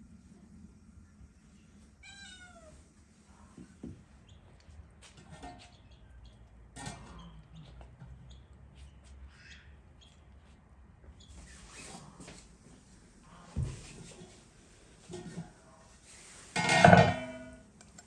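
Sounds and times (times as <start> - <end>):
cat meowing: 2.0 - 2.8.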